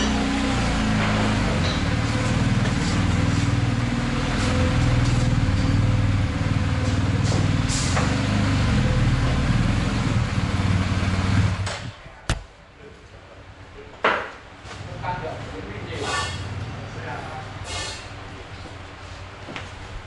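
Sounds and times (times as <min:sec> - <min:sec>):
motorcycle engine at low revs: 0:00.0 - 0:12.5.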